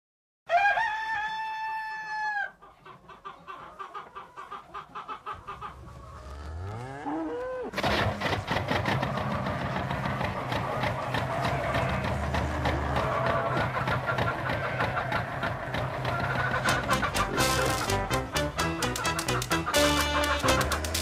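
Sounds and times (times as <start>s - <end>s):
rooster crowing: 0.5s - 2.6s
hens clucking: 2.4s - 21.0s
engine starting and running: 7.8s - 21.0s.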